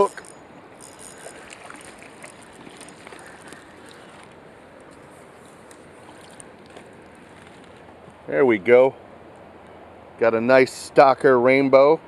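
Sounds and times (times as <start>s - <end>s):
flowing river water: 0.0s - 10.1s.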